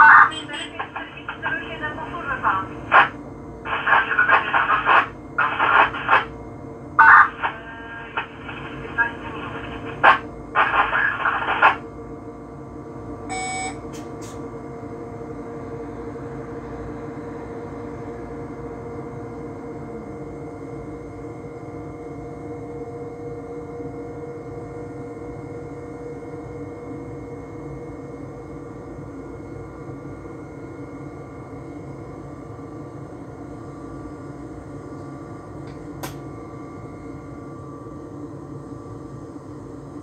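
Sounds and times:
radio voice: 0.0 - 3.1, 3.7 - 6.3, 7.0 - 11.8
electric train hum: 0.0 - 40.0
short electronic beep: 13.3 - 13.8.

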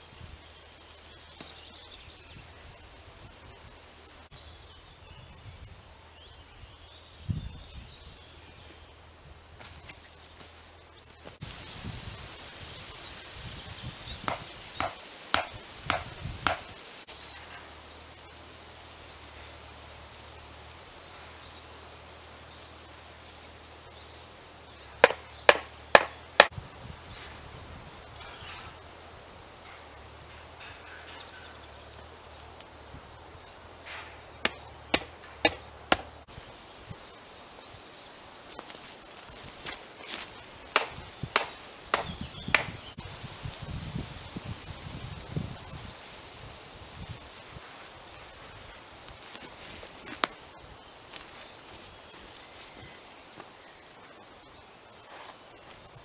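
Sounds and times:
hammer knocking wooden stakes: 14.2 - 16.7, 25.0 - 26.6, 34.0 - 36.2, 40.7 - 42.8.

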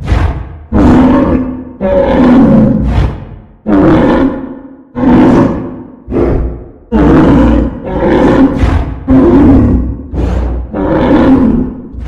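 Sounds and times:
deep animal roars: 0.0 - 12.0.

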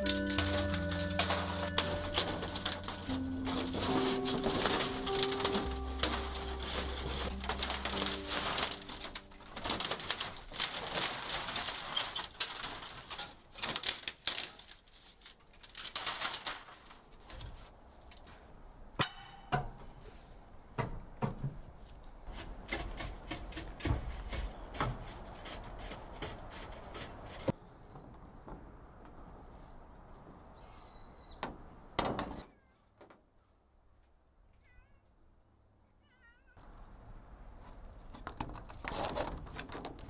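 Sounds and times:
plastic roofing sheets crackling: 0.0 - 18.5, 37.6 - 40.0.

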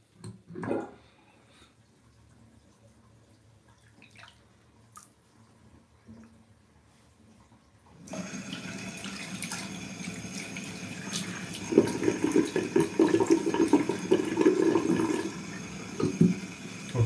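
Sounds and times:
tap water running into sink: 8.0 - 17.0.

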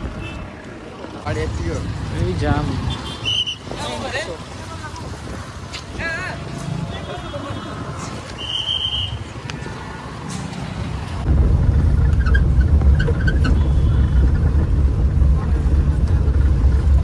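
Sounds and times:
road noise: 0.0 - 17.0
street noise: 0.0 - 17.0
jeep engine rumble: 10.8 - 17.0.

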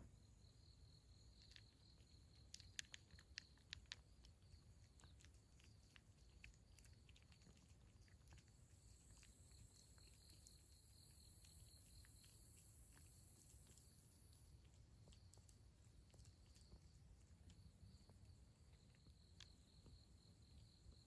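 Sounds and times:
cat crunching dry kibble: 1.3 - 17.8
pulsing insect chirp: 4.5 - 15.5.

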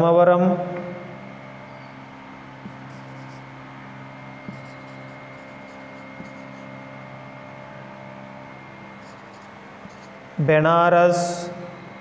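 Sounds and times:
steady electrical hum: 0.0 - 12.0
pen tapping on board: 2.6 - 3.4, 4.4 - 6.6
marker scratching on whiteboard: 2.6 - 3.5, 4.4 - 6.9, 9.0 - 10.2.

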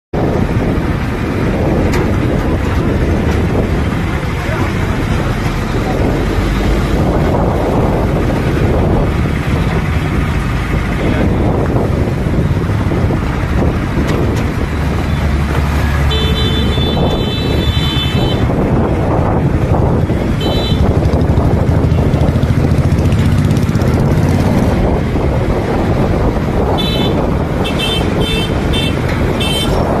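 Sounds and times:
road traffic noise: 0.1 - 30.0
vehicle horns honking: 15.1 - 18.6, 20.3 - 21.0, 26.7 - 30.0.

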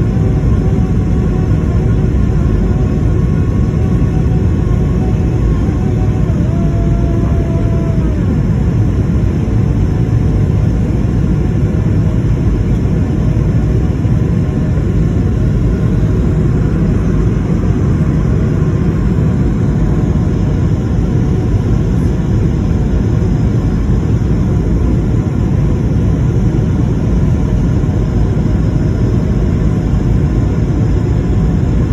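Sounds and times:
jet engines and rushing air: 0.0 - 31.9.

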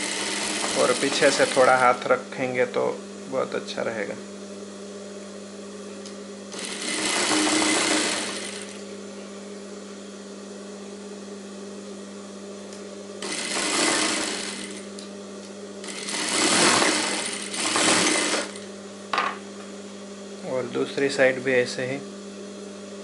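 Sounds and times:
sewing machine stitching: 0.0 - 1.9, 6.5 - 8.8, 13.2 - 14.9, 15.8 - 18.7
sewing machine motor hum: 0.0 - 2.1, 6.5 - 9.3, 13.2 - 18.8.

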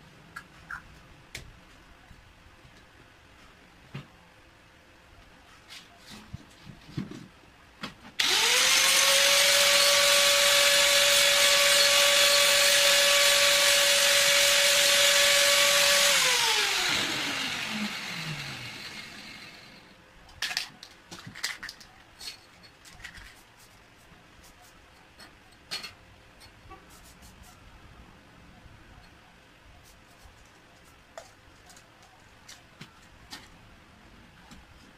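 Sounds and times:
angle grinder whining: 8.2 - 19.9
grinder spinning down: 8.2 - 19.9.

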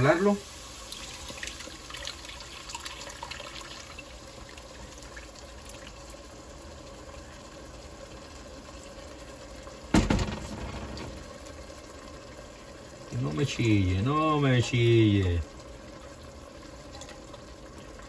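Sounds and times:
loud knock: 10.0 - 11.3.

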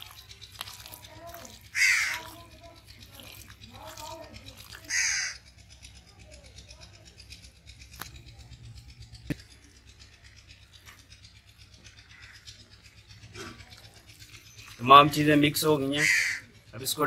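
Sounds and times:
hand squelching meat in marinade: 0.0 - 5.5.

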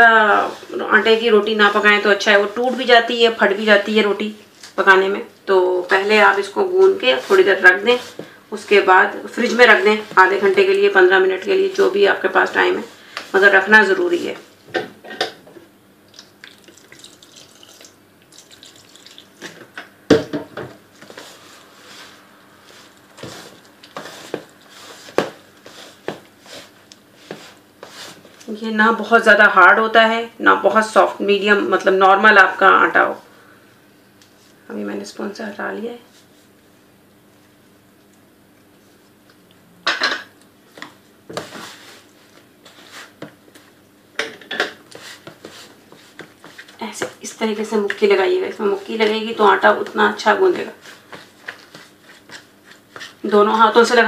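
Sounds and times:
spoon mixing dough in bowl: 20.9 - 28.5, 44.7 - 54.0.

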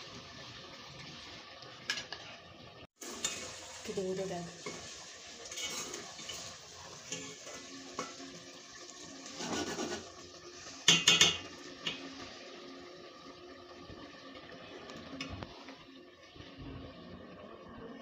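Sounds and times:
metal spoon stirring in pot: 4.6 - 8.2.

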